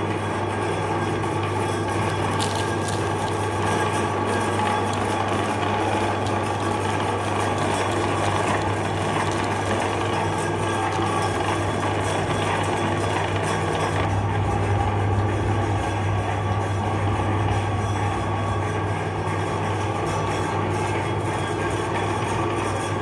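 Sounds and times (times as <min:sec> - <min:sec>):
electric meat grinder running: 0:00.9 - 0:14.9.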